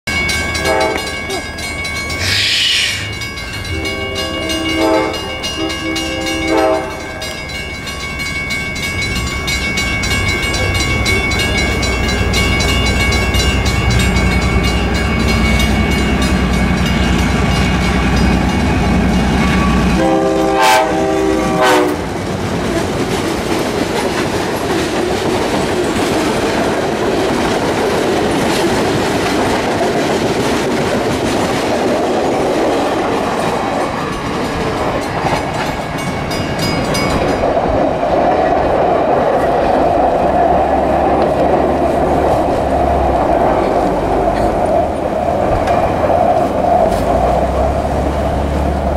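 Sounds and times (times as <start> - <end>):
diesel locomotive engines rumbling: 0.1 - 48.9
train wheels clacking on rails: 0.1 - 48.9
train air horn: 0.6 - 1.2, 2.2 - 3.1, 3.7 - 7.4, 19.4 - 22.1.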